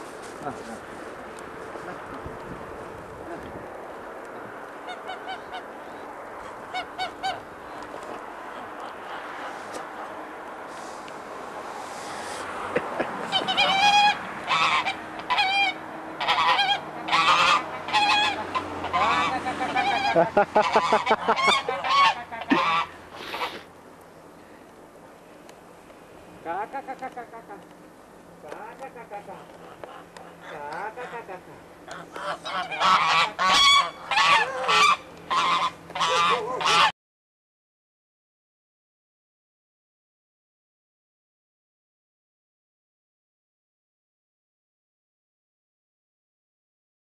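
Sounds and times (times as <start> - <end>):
geese honking: 4.8 - 11.0, 13.1 - 23.7, 28.4 - 36.9.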